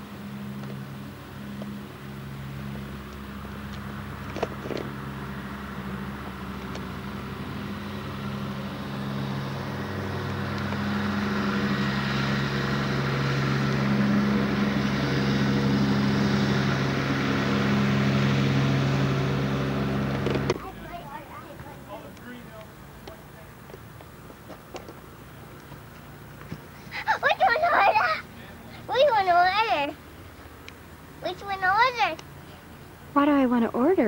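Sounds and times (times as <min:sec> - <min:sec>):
lawn mower engine running: 0:00.0 - 0:34.0.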